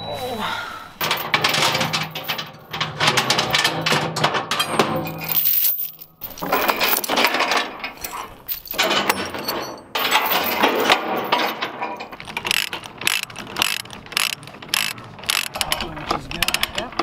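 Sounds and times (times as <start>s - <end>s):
steel chain rattling over logs: 1.0s - 17.0s
ratchet clicks: 12.2s - 17.0s.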